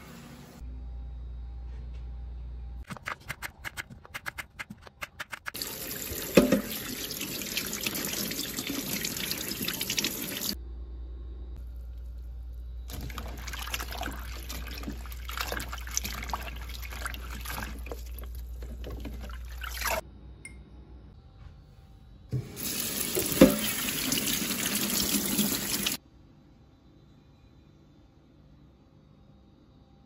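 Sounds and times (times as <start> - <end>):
tap water running: 5.5 - 10.6, 12.9 - 20.0, 22.4 - 26.0
hands rubbing leaves in water: 12.9 - 20.0.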